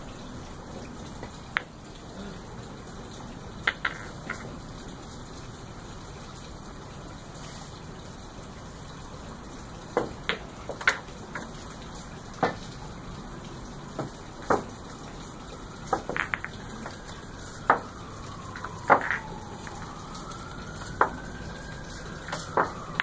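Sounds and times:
pool balls clicking: 0.8s - 1.8s, 3.6s - 4.5s, 9.9s - 11.7s, 13.9s - 14.8s, 15.8s - 17.9s, 18.5s - 19.9s, 20.9s - 21.2s, 22.2s - 23.0s
cue striking ball: 3.7s - 4.4s, 15.9s - 17.0s, 18.8s - 19.2s.

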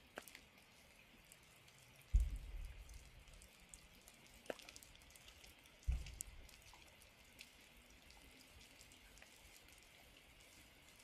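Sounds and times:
light rain dripping: 0.0s - 11.0s
dull low thump: 2.1s - 2.8s, 5.8s - 6.3s.

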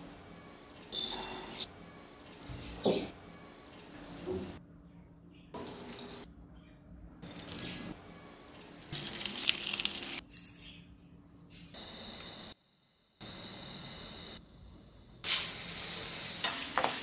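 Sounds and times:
dry leaves crackling: 8.9s - 10.2s.

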